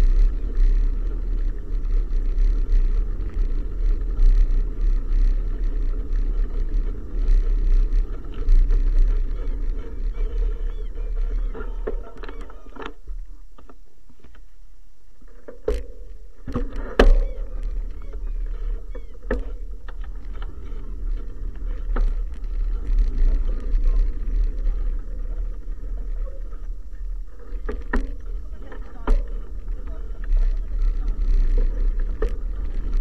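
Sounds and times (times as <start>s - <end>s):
bicycle rolling rattle: 0.0s - 33.0s
wind buffeting microphone: 16.4s - 33.0s.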